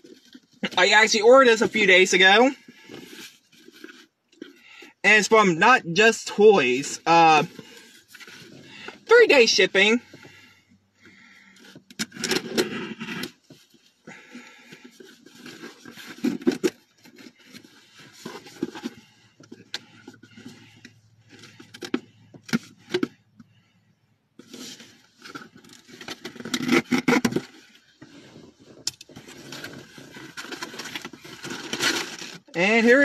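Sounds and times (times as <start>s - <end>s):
packaging rustling and crinkling: 11.6s - 22.0s, 24.4s - 32.5s.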